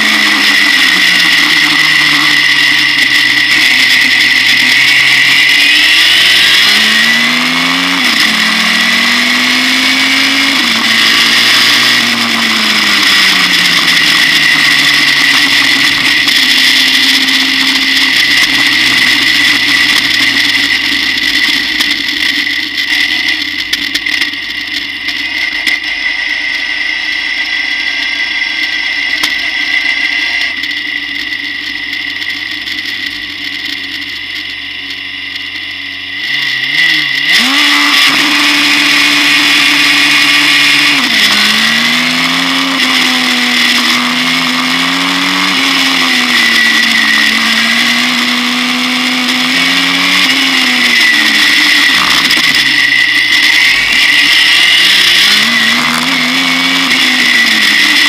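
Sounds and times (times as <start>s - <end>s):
racing car engine revving: 0.0s - 33.0s, 35.6s - 58.0s
high whine: 0.0s - 58.0s.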